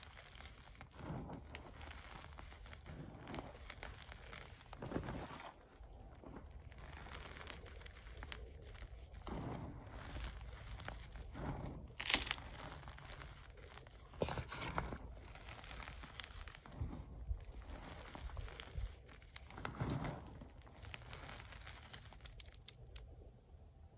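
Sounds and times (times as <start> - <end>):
hands crushing powdery chalk: 0.0 - 23.1.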